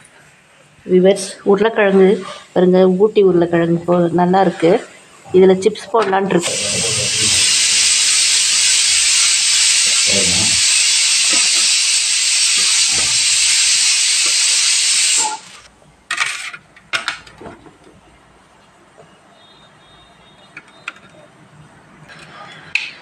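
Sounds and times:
loud hiss of escaping steam: 6.4s - 15.7s.

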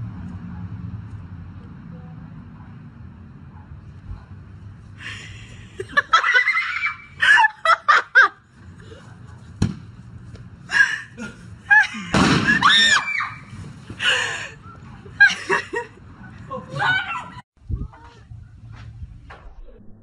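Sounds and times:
people shouting and screaming: 6.1s - 7.5s, 11.8s - 13.6s, 16.5s - 17.4s
small explosive bang: 12.1s - 12.7s.

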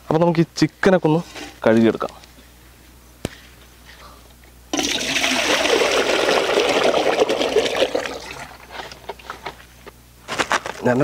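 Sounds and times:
water pouring into metal pot: 4.8s - 8.6s.

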